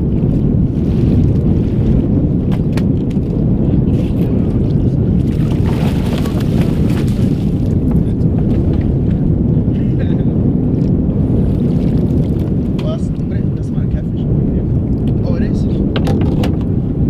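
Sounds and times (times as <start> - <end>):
water splashing against boat: 0.0 - 9.3, 10.7 - 13.7
wind buffeting microphone: 0.0 - 17.0.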